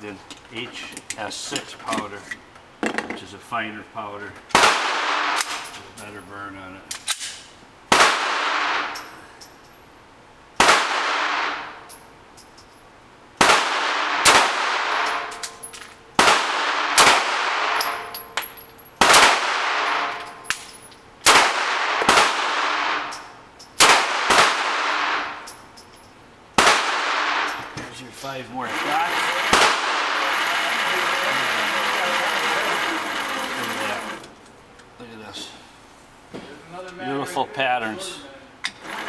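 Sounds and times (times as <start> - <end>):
pistol shots echoing indoors: 4.5 - 5.6, 7.9 - 9.0, 10.6 - 11.8, 13.4 - 15.5, 16.2 - 18.1, 19.0 - 20.4, 21.2 - 25.4, 26.6 - 27.6.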